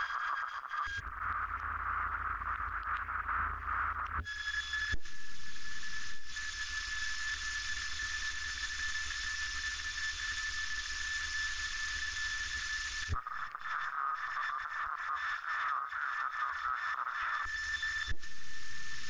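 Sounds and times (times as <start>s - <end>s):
airplane cockpit drone: 1.0s - 13.2s.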